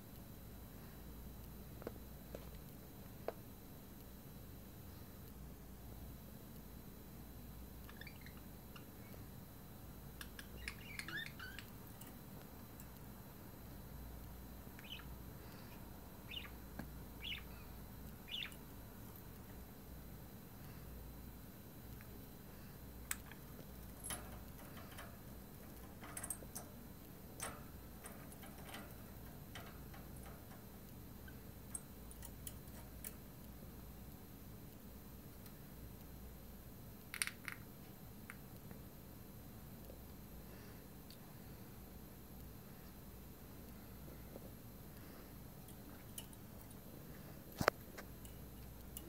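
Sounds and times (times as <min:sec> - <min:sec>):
parrots chirping: 0:07.9 - 0:08.9, 0:10.2 - 0:11.7, 0:14.8 - 0:15.1, 0:16.2 - 0:16.6, 0:17.2 - 0:18.7.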